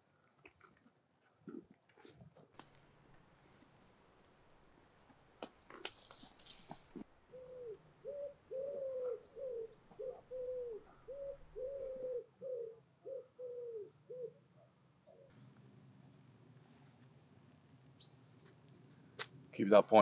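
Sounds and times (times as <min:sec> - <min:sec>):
pigeon cooing: 0:07.3 - 0:15.3.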